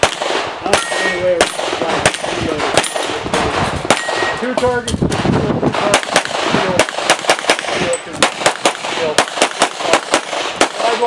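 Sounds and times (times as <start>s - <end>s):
pistol shots: 0.0s - 11.0s.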